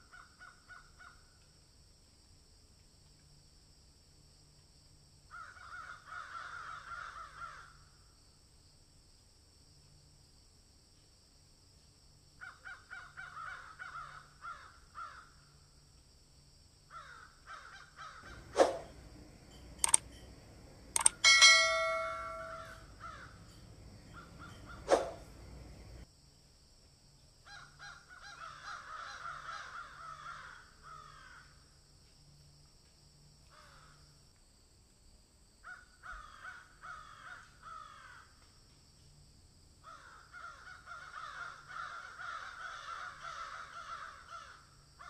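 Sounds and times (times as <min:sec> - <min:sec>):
harsh cawing animal calls: 0:05.3 - 0:07.9, 0:12.4 - 0:15.4, 0:16.9 - 0:18.9, 0:27.5 - 0:31.6, 0:35.6 - 0:38.4, 0:39.8 - 0:44.8
faint steady high whine: 0:18.2 - 0:26.0
sharp clicks: 0:18.3 - 0:22.8.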